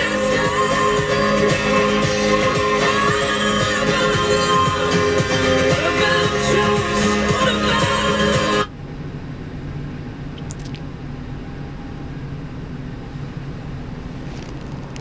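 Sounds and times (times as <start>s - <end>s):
radio music from car speakers: 0.0s - 8.7s
car engine idling: 0.0s - 14.3s.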